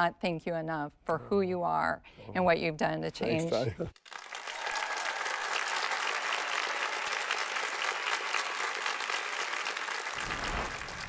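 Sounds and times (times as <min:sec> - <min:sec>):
audience applauding: 0:04.0 - 0:11.0.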